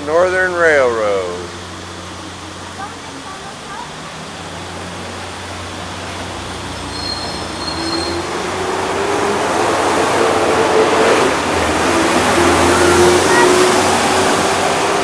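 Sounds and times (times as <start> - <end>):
large vehicle rushing noise: 3.7 - 15.0.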